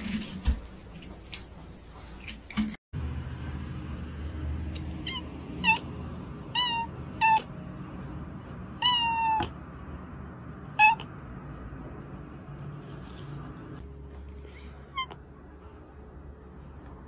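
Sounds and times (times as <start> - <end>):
cat meowing: 5.0 - 7.5, 8.8 - 9.6, 10.7 - 11.1.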